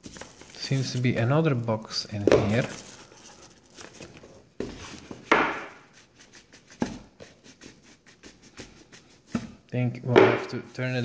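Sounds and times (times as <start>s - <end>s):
cardboard rubbing and scraping: 0.0s - 1.3s, 2.4s - 9.6s.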